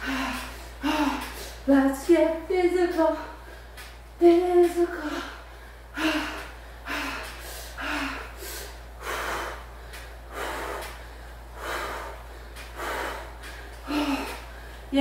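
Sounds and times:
woman breathing hard: 0.0 - 1.7, 5.0 - 15.0.

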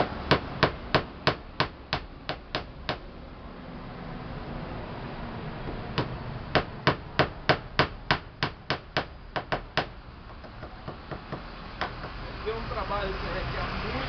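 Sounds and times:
hammer driving nails into plywood: 5.7 - 12.2.

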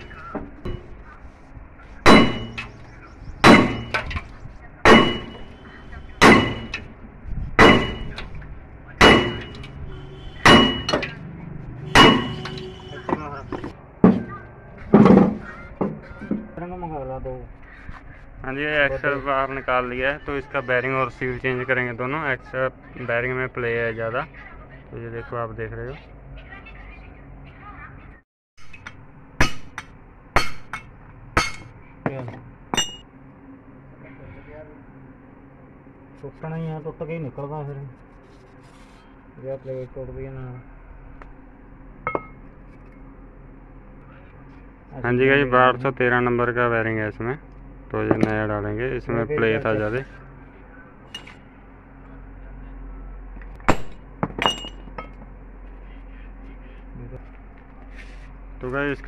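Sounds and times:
hammer striking chisel on metal: 2.0 - 2.8, 3.4 - 4.2, 4.9 - 5.5, 6.2 - 6.9, 7.6 - 8.3, 9.0 - 9.8, 10.4 - 11.2, 11.9 - 14.3, 28.6 - 31.8, 32.8 - 33.0, 42.1 - 42.4
hammer blows on steel: 9.0 - 11.1, 11.8 - 13.2.

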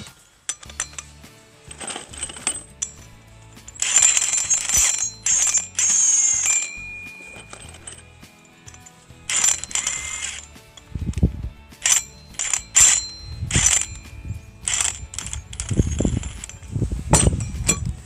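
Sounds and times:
steel plates clinking: 0.0 - 18.0
impact wrench bursts: 3.6 - 8.0, 8.7 - 10.6, 11.8 - 17.5.

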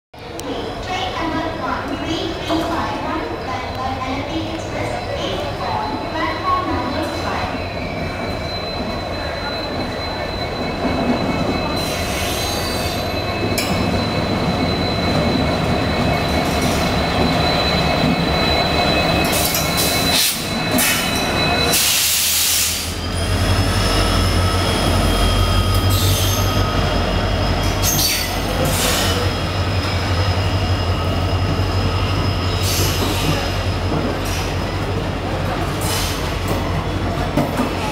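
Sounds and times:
diesel locomotive engine running: 0.2 - 37.9
high-pitched wheel squeal: 4.8 - 34.8.

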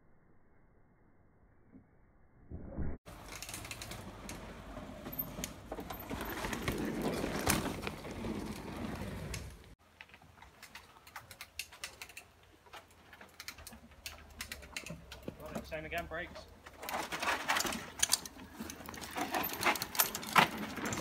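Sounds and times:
bike tyres clattering over wooden slats: 3.1 - 9.8, 16.4 - 21.0.

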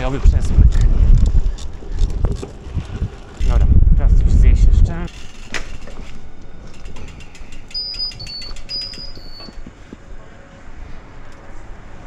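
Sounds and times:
short electronic beeps: 7.6 - 9.6.

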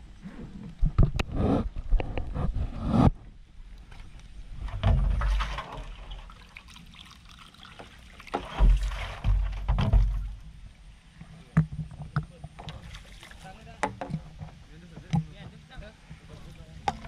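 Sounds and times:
water splashing into plastic cup: 5.2 - 9.3
low thumps of handling: 8.4 - 13.1.

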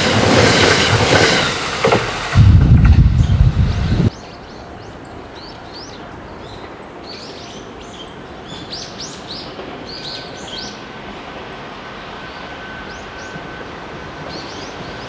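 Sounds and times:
background rumble: 2.3 - 4.1.

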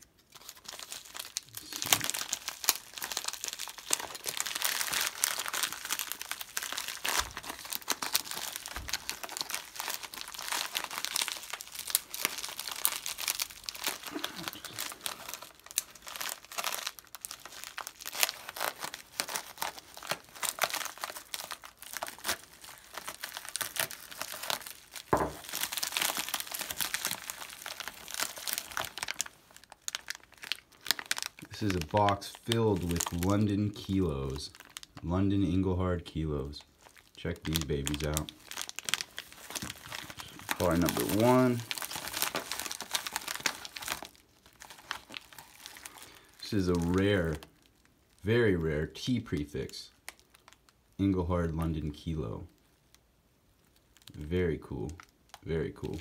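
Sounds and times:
envelope crinkling and crackling: 0.0 - 56.0
plastic sleeves rustling: 0.0 - 56.0.

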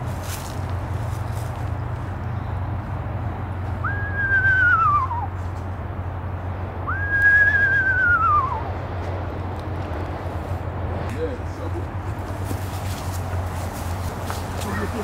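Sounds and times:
person whistling owl call: 3.8 - 5.3, 6.9 - 8.6.

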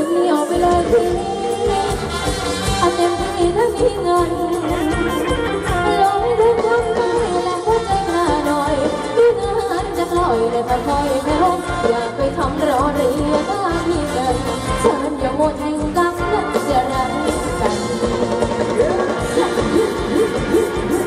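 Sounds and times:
live dance band playing: 0.0 - 21.0
person singing: 2.8 - 21.0
steady drum beat: 17.3 - 21.0.

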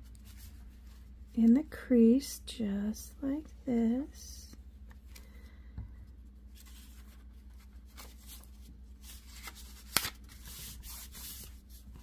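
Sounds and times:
steady low hum: 0.0 - 12.0
hands rustling paper: 6.5 - 12.0.

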